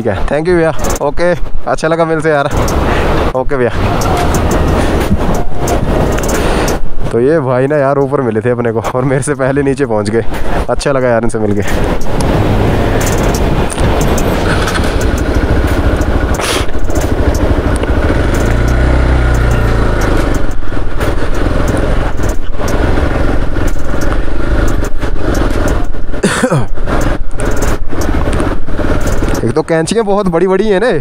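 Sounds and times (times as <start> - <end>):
motorcycle engine running: 2.4 - 7.1, 11.6 - 29.9.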